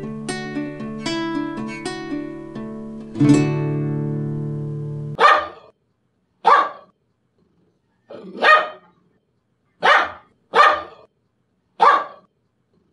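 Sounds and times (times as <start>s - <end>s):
dog barking: 5.2s - 5.7s, 6.4s - 6.9s, 8.1s - 9.0s, 9.8s - 11.1s, 11.8s - 12.3s.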